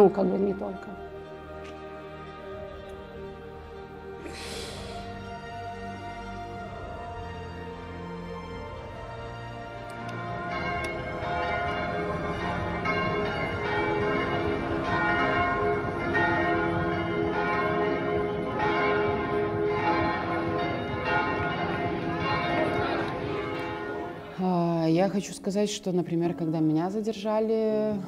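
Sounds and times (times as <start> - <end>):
bells ringing in a peal: 5.2 - 25.2.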